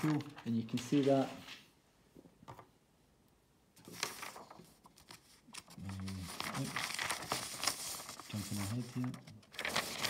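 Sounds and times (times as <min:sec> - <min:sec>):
paper rustling: 0:00.0 - 0:01.8, 0:03.8 - 0:10.0
man's voice murmuring: 0:05.8 - 0:06.8.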